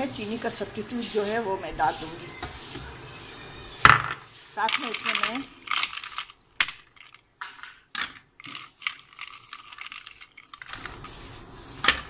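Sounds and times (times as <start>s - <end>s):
ice cubes clicking: 4.6s - 7.2s, 8.0s - 10.9s.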